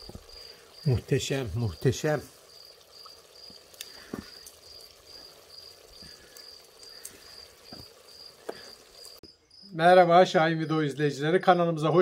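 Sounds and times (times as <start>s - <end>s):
stew simmering pops and clicks: 0.0s - 9.3s
insect chirping: 0.0s - 11.1s.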